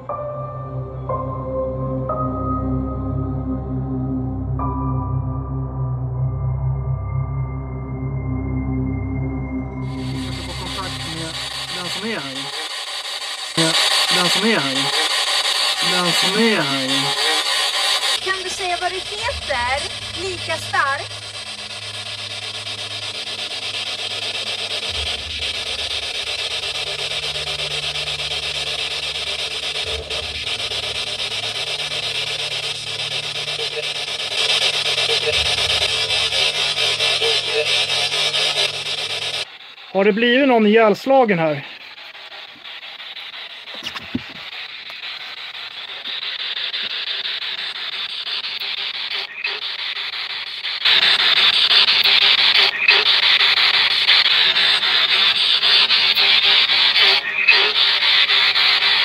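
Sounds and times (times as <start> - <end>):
radio static hissing: 9.4 - 59.0.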